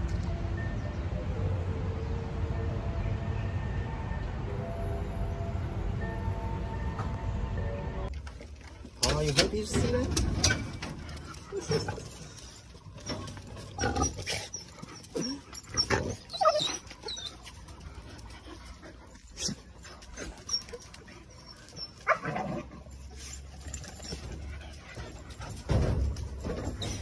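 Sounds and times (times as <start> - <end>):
young dogs whining and yelping: 10.8 - 27.0.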